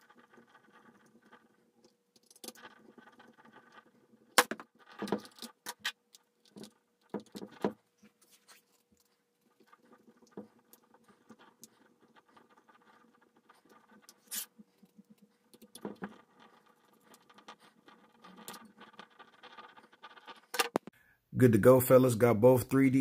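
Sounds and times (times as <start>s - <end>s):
plastic parts clicking and knocking: 0.0s - 7.9s, 8.7s - 21.0s.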